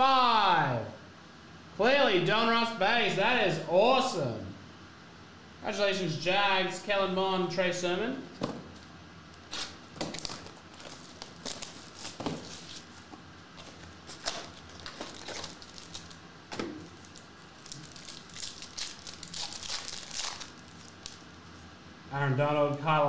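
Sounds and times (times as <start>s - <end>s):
foil pack crinkling and tearing: 9.4s - 21.4s.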